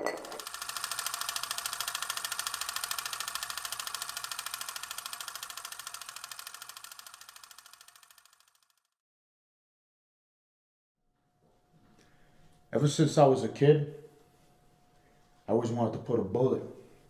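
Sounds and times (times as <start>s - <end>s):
film projector clattering: 0.1s - 8.8s.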